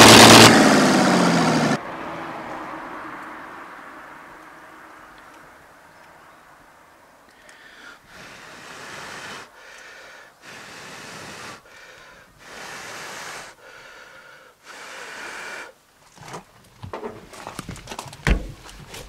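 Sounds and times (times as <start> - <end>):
man blowing hard on wick: 0.0 - 1.8, 7.5 - 15.8.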